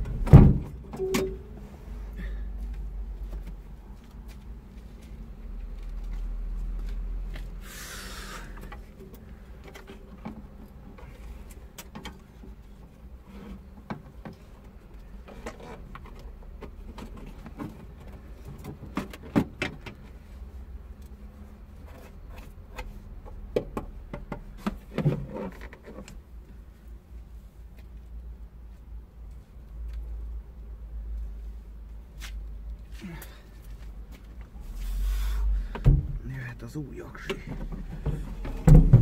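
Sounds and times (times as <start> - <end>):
low steady rumble: 26.2 - 39.0.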